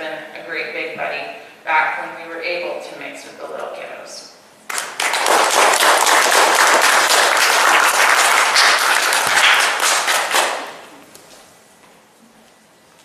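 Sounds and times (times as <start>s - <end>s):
group applauding: 4.7s - 10.9s.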